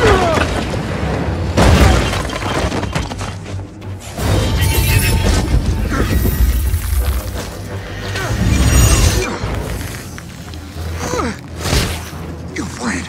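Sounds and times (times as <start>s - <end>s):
crashing impacts and shattering debris: 0.0s - 7.5s
rumbling and breaking: 0.0s - 12.4s
dramatic film score: 0.0s - 13.0s.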